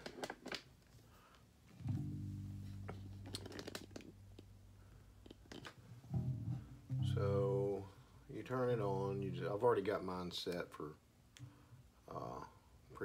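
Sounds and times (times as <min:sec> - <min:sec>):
bass guitar string plucked: 0:01.8 - 0:04.7, 0:06.1 - 0:08.0, 0:08.7 - 0:09.7.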